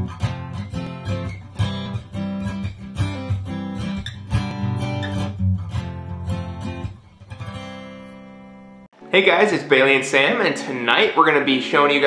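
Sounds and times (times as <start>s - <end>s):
strummed acoustic guitar: 0.0s - 12.0s.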